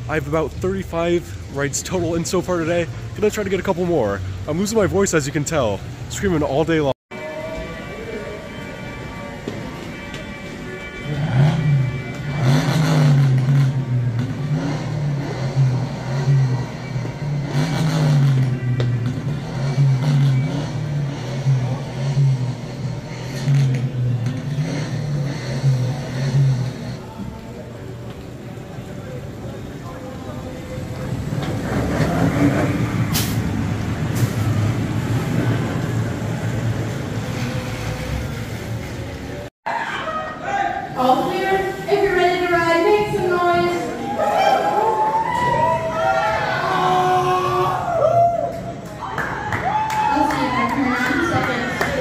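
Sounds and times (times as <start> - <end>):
roller coaster train on track: 18.3 - 39.5
roller coaster rumbling on wooden track: 30.7 - 39.0.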